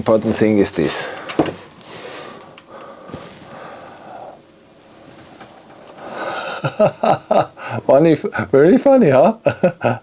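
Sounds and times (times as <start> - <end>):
person breathing softly: 1.0 - 6.7.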